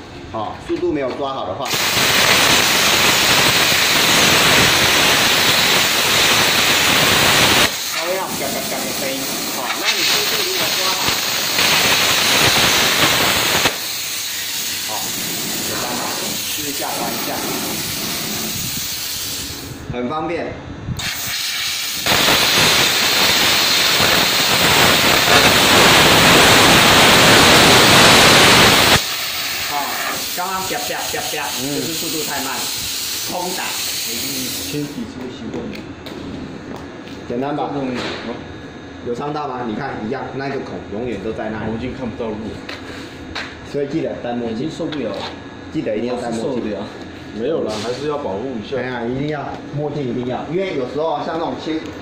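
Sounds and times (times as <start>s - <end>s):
plasma cutter arc hissing: 1.6s - 19.8s, 21.0s - 35.0s, 47.6s - 48.4s
man talking: 14.9s - 17.6s, 29.7s - 32.7s, 33.3s - 35.8s, 43.7s - 51.9s.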